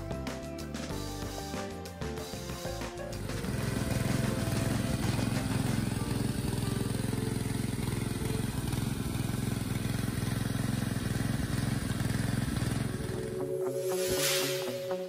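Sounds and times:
spraying water: 1.0 - 13.0
fountain motor hum: 3.2 - 13.4.

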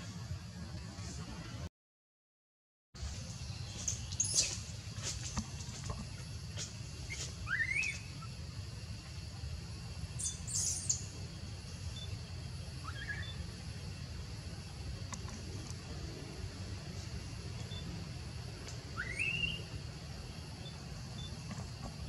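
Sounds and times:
bird chirps: 3.4 - 4.7, 7.0 - 8.4, 10.1 - 13.6, 18.8 - 19.8.

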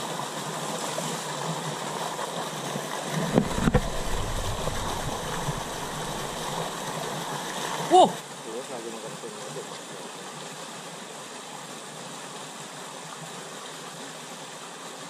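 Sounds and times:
stream rushing over rocks: 0.0 - 8.5
low rumble: 3.2 - 6.8
sharp knocks: 3.3 - 6.7.

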